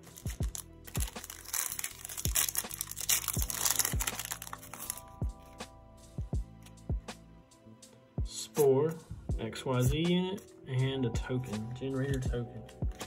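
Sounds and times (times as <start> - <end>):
foil pack crinkling and tearing: 0.0 - 5.2
background music with steady beat: 0.0 - 13.0.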